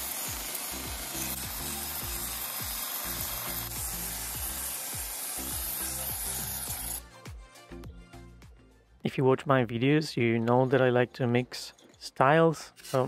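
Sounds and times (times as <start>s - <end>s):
belt file sanding wood: 0.0s - 7.0s
background music: 0.0s - 13.0s.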